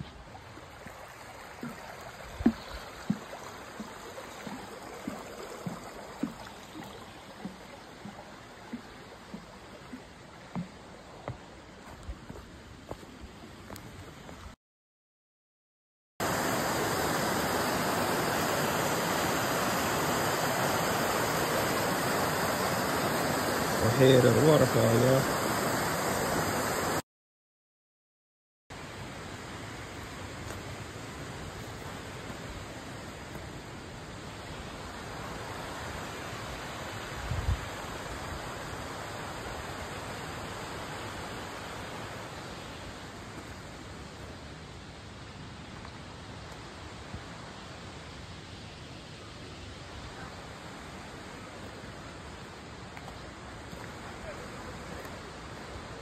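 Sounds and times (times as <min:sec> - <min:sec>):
waterfall rushing over rocks: 0:16.2 - 0:27.0, 0:28.8 - 0:56.0.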